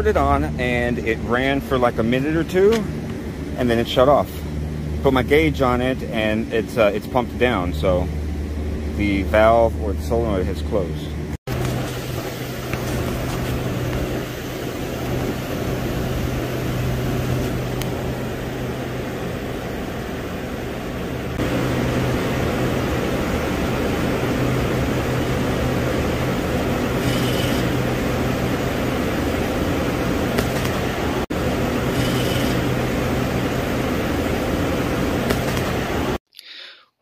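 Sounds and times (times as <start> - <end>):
refrigeration machinery hum: 0.0 - 36.2
high-pitched valve motor whirs: 26.8 - 28.6, 31.7 - 33.3.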